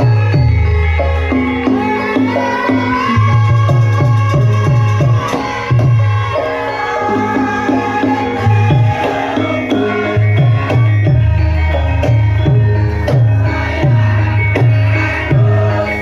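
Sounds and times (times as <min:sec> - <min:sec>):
pitched melodic patterns: 0:04.4 - 0:16.0.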